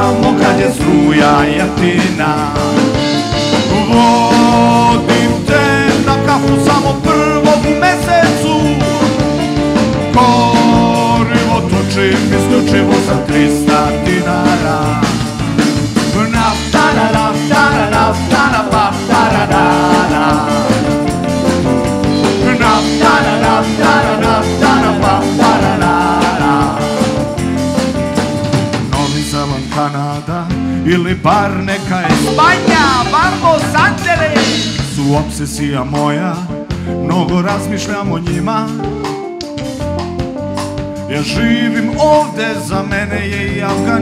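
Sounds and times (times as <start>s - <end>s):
man singing lead: 0.0s - 27.4s, 28.8s - 39.2s, 41.0s - 44.0s
bass guitar: 0.0s - 44.0s
drum kit: 0.0s - 44.0s
electric guitar: 0.0s - 44.0s
keyboard: 0.0s - 44.0s
hand percussion: 32.0s - 34.8s.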